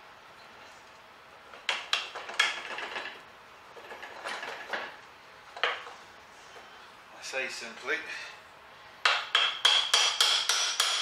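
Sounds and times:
metal clicks knocks and scraping: 1.5 - 3.2, 3.8 - 6.0.

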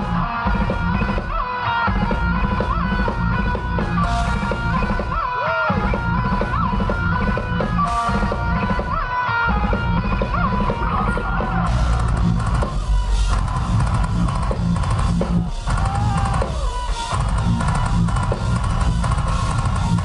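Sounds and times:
high guitar melody: 0.0 - 20.0
live heavy metal band: 0.0 - 20.0.

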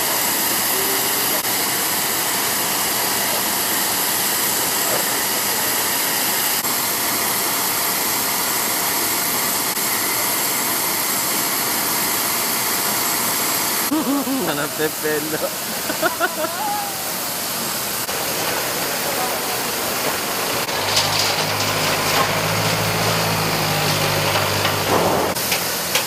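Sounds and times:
jet turbine rushing and whining: 0.0 - 26.0.

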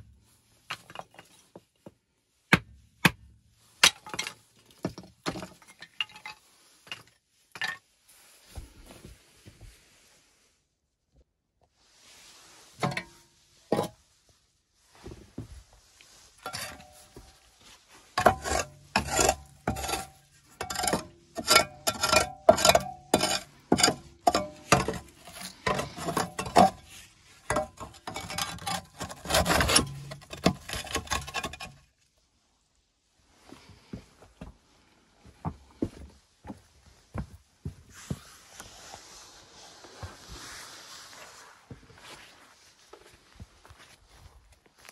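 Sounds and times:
scraping ash in iron stove: 18.1 - 26.9, 27.5 - 31.7.

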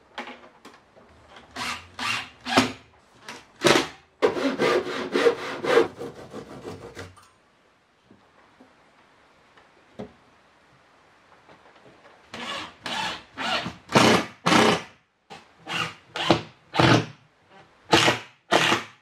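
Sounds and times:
hand tool rasping on wood: 4.3 - 7.0.

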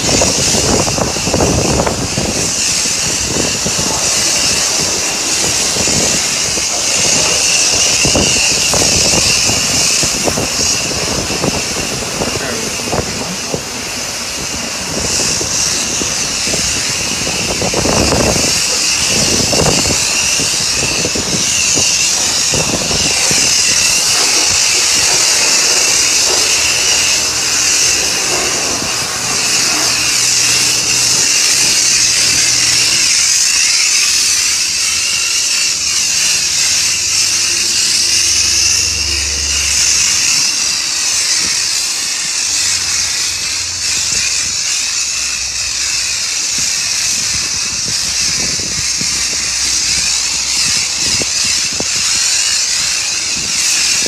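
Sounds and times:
high whine: 0.0 - 54.0
pressure washer spraying: 0.0 - 54.0
low hum: 36.4 - 42.4.

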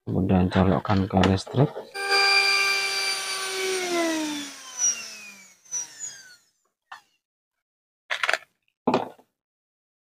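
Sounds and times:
electric motor whining and spinning down: 1.9 - 6.6.

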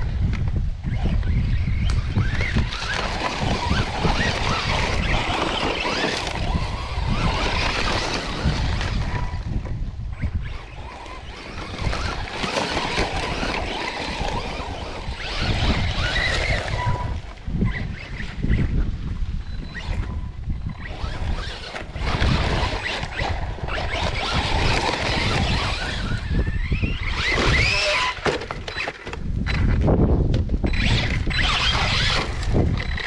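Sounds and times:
electric motor whining: 0.0 - 29.9, 30.6 - 33.0
wind rumbling on microphone: 0.0 - 33.0
tyres churning sand: 2.2 - 9.6, 10.5 - 17.1.

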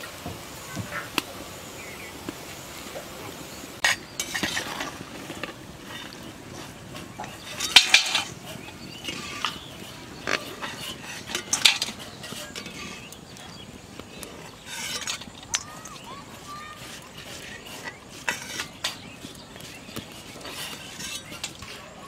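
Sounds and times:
food deep-frying in oil: 0.0 - 22.0
metal spoon clinking and scraping: 3.8 - 13.6, 14.4 - 16.0, 16.8 - 19.2, 19.8 - 22.0.

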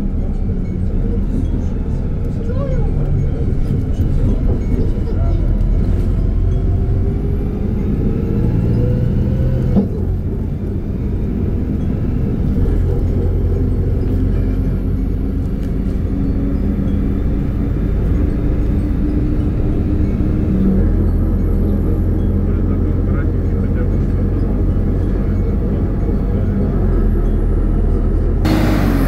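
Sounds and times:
bus engine humming: 0.0 - 29.0
road rumble: 0.0 - 29.0
rising whine: 26.4 - 29.0.

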